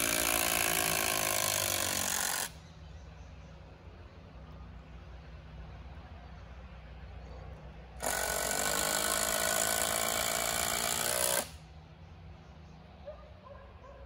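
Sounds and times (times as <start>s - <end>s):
power driver driving a screw: 8.0s - 11.5s.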